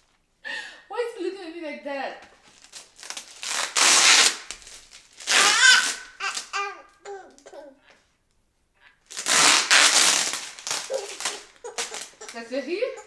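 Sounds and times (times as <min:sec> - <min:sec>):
plastic wrapping crinkling: 0:02.3 - 0:07.4, 0:09.0 - 0:13.0
baby babbling: 0:05.4 - 0:07.9, 0:10.8 - 0:13.0.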